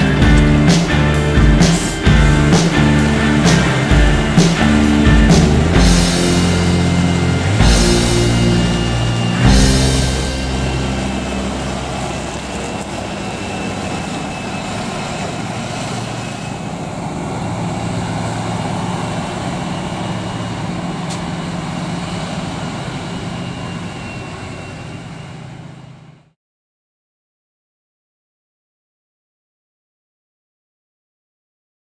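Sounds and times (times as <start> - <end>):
rush of chopper and crop: 0.0 - 25.7
harvester engine drone: 0.0 - 26.3.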